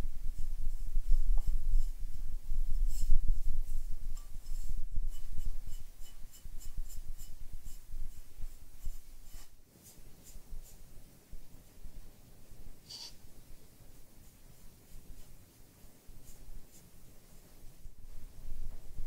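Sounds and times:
brush stroking glaze onto cup: 0:00.3 - 0:11.0, 0:12.9 - 0:13.3, 0:13.9 - 0:17.9.

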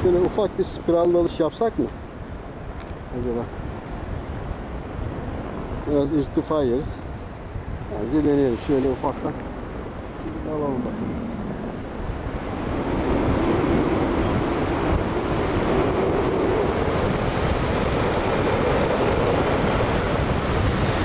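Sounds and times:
air rushing over microphone: 0:05.1 - 0:21.0.

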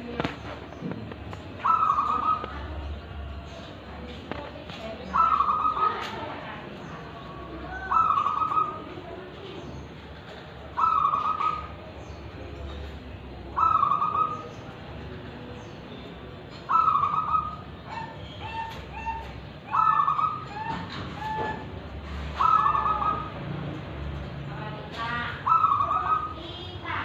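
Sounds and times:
dove cooing: 0:00.1 - 0:06.4, 0:07.4 - 0:09.5, 0:10.3 - 0:12.0, 0:13.4 - 0:15.5, 0:16.5 - 0:23.4, 0:25.2 - 0:26.8.

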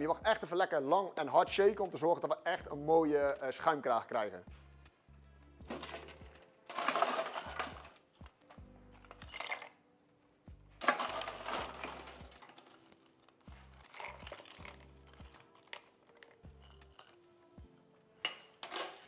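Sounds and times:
quiet background music: 0:00.0 - 0:19.0
ice cubes rattling into shaker: 0:05.7 - 0:08.0, 0:09.1 - 0:09.8, 0:10.8 - 0:12.9, 0:13.8 - 0:17.2.

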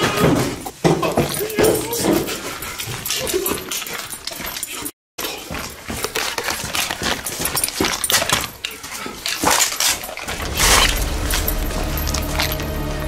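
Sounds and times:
small hard objects clattering: 0:05.5 - 0:13.0
background music: 0:10.4 - 0:13.0.

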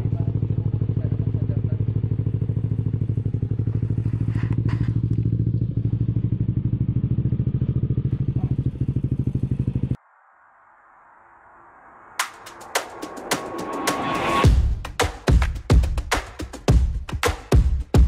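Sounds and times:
scooter engine idling: 0:00.0 - 0:10.0.

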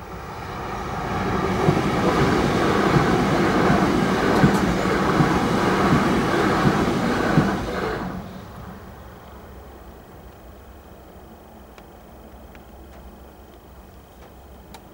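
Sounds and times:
train wheels rushing on rail: 0:00.0 - 0:14.9
rail joint clacks: 0:01.5 - 0:08.1.

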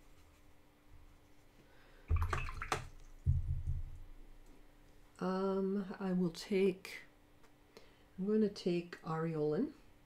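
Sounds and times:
brush splashing in water jar: 0:02.1 - 0:03.2.

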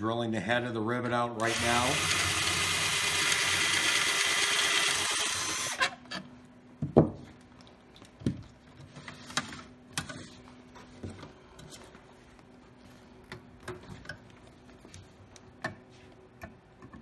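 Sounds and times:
cordless drill boring metal: 0:01.4 - 0:06.0.

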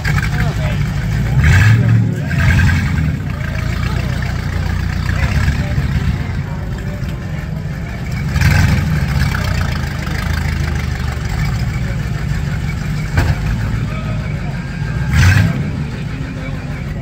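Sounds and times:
car engines revving: 0:00.0 - 0:17.0
sharp bang: 0:13.1 - 0:13.6.

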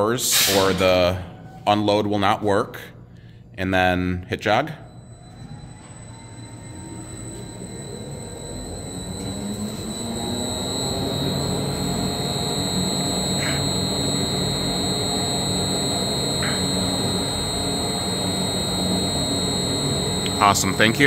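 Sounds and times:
high whine: 0:00.0 - 0:21.0
blender motor hum: 0:06.8 - 0:21.0.

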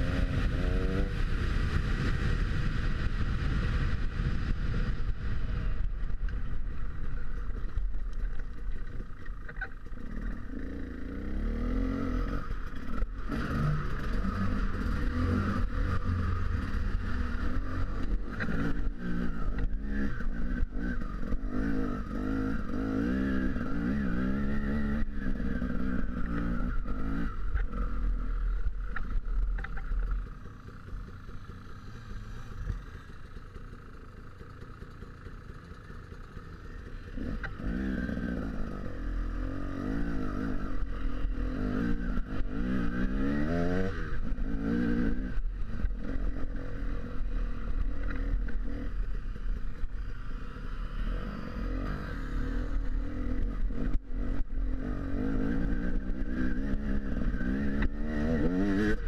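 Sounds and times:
dirt bike engine revving: 0:00.0 - 0:03.8, 0:09.9 - 0:29.2, 0:36.1 - 0:59.0
bike rattling and scraping: 0:05.6 - 0:50.5.

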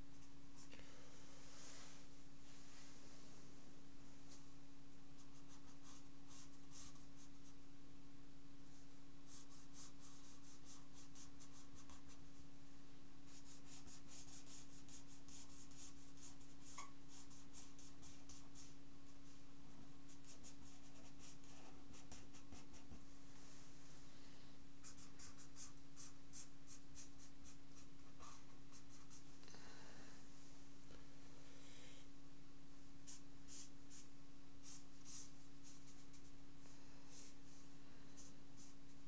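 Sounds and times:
steady low hum: 0:00.0 - 0:39.0
felt-tip pen scratching paper: 0:05.2 - 0:07.6, 0:09.3 - 0:12.2, 0:13.3 - 0:18.8, 0:20.1 - 0:23.0, 0:24.8 - 0:29.3, 0:33.0 - 0:36.3.

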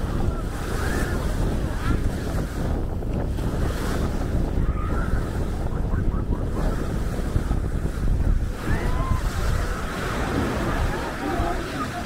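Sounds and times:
waves washing onto a beach: 0:00.0 - 0:12.0
wind rumbling on microphone: 0:00.0 - 0:12.0.

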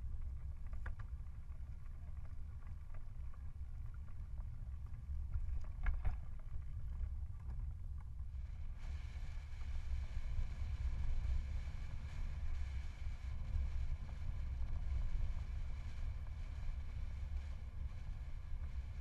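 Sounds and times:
bicycle tyre and road noise: 0:00.0 - 0:19.0
wind rumbling on microphone: 0:00.0 - 0:19.0
steady hiss: 0:08.4 - 0:19.0.

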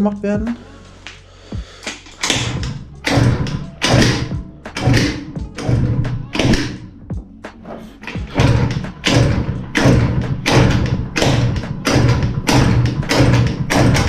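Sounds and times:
scooter kickstarter thumps: 0:02.2 - 0:06.9, 0:08.0 - 0:14.0.

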